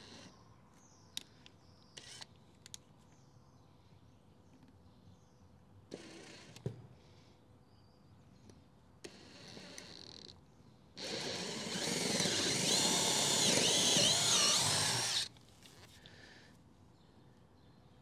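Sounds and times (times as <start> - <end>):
cordless drill boring wood: 9.1 - 10.0, 11.0 - 15.3.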